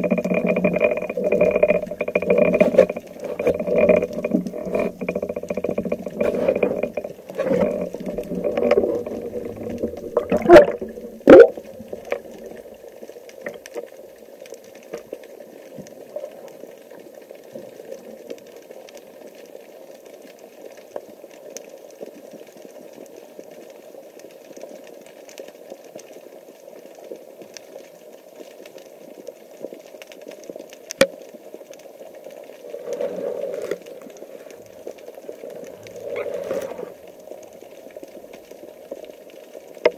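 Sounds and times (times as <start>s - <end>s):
underwater rush of water: 0.0s - 19.4s, 31.2s - 39.9s
faint ticks: 0.0s - 39.9s.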